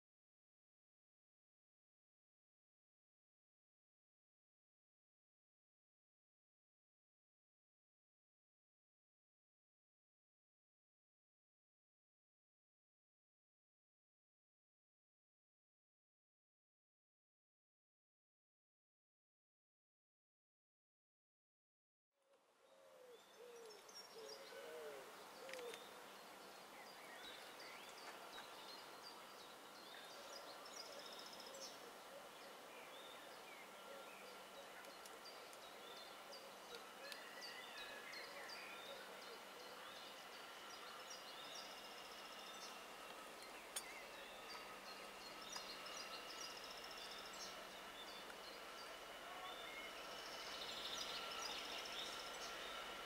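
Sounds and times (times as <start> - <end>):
birds chirping and whistling: 23.1 - 53.0
steady high-pitched tones: 31.4 - 53.0.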